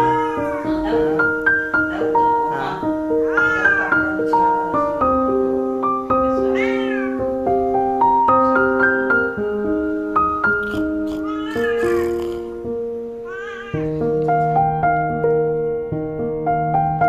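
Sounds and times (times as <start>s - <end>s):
cat meowing: 0.0s - 2.2s, 3.2s - 4.6s, 6.3s - 7.2s, 10.6s - 12.6s, 13.2s - 14.0s
piano music: 0.0s - 17.0s.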